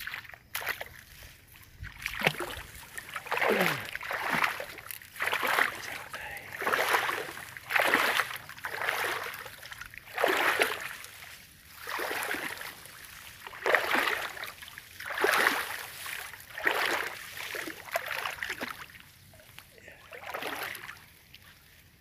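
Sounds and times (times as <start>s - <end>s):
footsteps wading through water: 0.0s - 22.0s.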